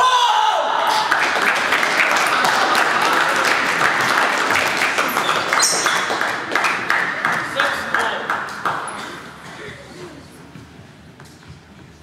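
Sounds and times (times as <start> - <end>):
audience applauding: 0.9 - 9.3.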